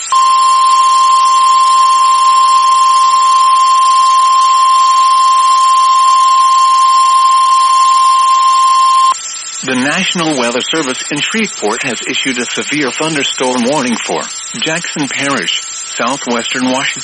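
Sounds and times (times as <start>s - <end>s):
faint radio hiss: 0.0s - 17.0s
steady alarm tone: 0.0s - 17.0s.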